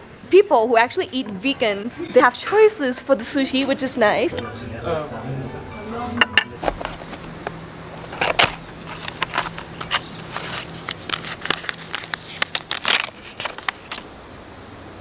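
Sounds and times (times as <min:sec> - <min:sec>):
cardboard box opened: 0:06.6 - 0:07.4, 0:08.1 - 0:14.0
paper sachet rustling: 0:06.6 - 0:14.1.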